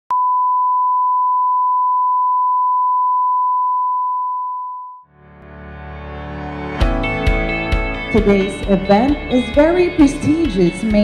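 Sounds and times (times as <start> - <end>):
single-pitch test tone: 0.1 - 5.0
quiet music: 5.4 - 11.0.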